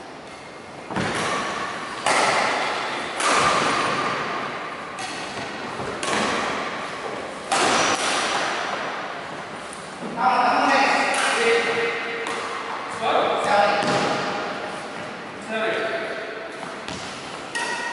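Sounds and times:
racket hitting shuttlecock: 0.2 - 9.8, 10.9 - 14.9, 15.8 - 17.9.

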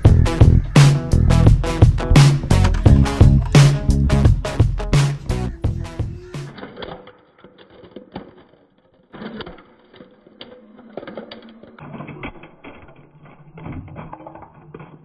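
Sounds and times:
small clicks and taps on concrete: 6.5 - 15.0.

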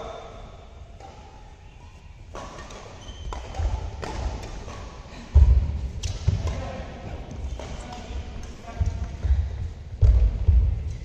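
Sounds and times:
rackets striking shuttlecock: 2.3 - 9.4.

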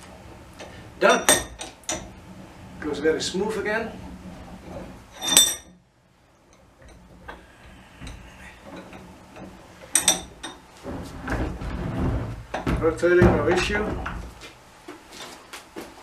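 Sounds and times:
low rumble of vise swiveling: 0.0 - 15.5
vise handle clanking: 0.6 - 2.2, 4.5 - 5.8, 6.5 - 14.4.

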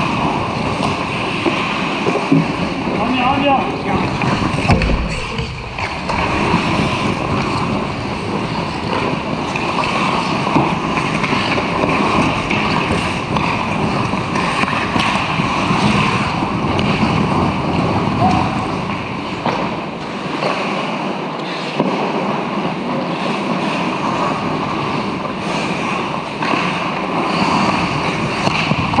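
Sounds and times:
skates scraping on ice: 0.0 - 29.0
rink noise: 0.1 - 20.4.

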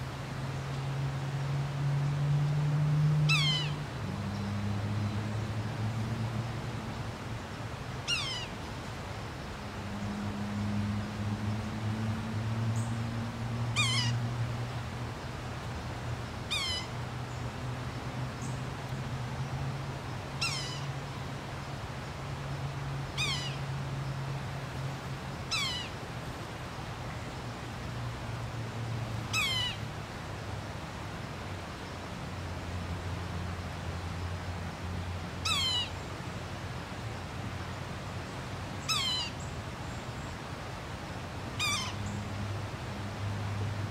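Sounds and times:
bird mewing call: 3.3 - 3.8, 8.0 - 8.6, 13.7 - 14.2, 16.5 - 17.0, 20.4 - 21.0, 23.2 - 23.7, 25.5 - 26.0, 29.3 - 29.8, 35.4 - 36.0, 38.8 - 39.5, 41.6 - 42.2.

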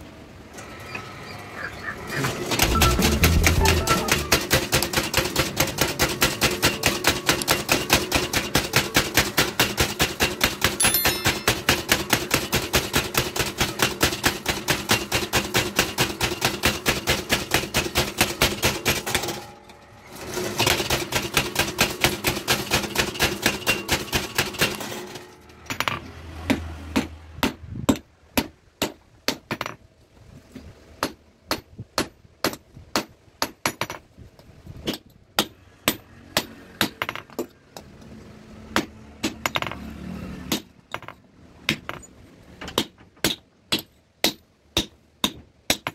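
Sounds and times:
power hammer pounding hot steel: 2.5 - 19.6
hand hammer striking metal on anvil: 2.6 - 19.4, 42.7 - 45.9.

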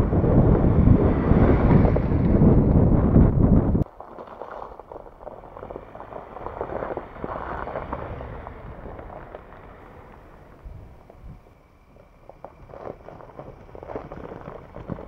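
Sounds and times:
pickup truck driving past: 0.0 - 3.8, 4.8 - 12.2
tyres on muddy track: 0.0 - 15.0
wind buffeting microphone: 0.0 - 15.0.

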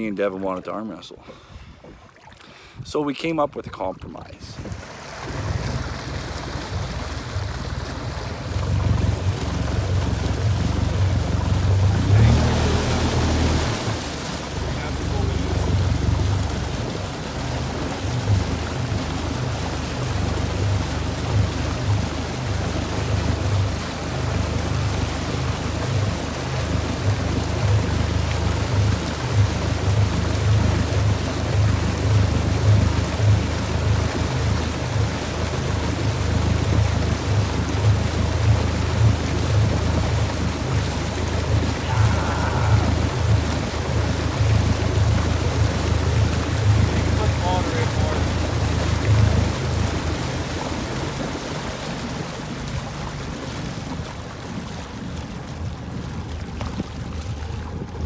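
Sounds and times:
motorboat engine running: 0.0 - 58.0
water churning: 0.0 - 58.0
wind on microphone: 1.2 - 14.4.

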